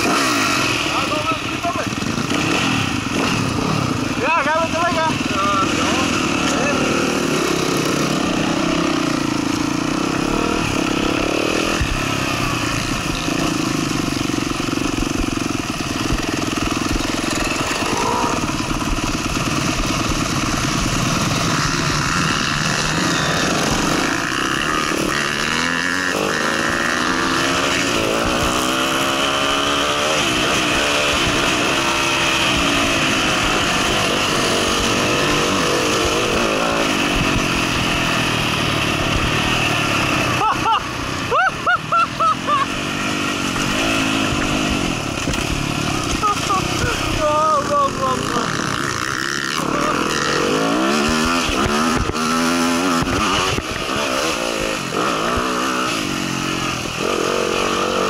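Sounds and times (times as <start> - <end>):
dirt bike engine revving: 0.0 - 58.0.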